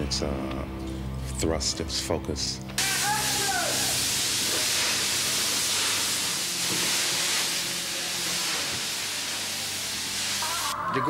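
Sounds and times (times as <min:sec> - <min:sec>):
loud steady hiss: 0:02.8 - 0:10.8.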